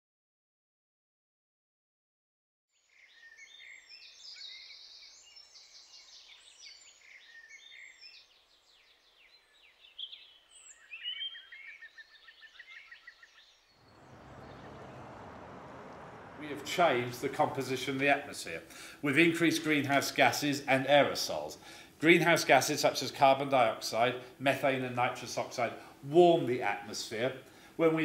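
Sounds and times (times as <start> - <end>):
songbirds singing: 2.8 - 17.5.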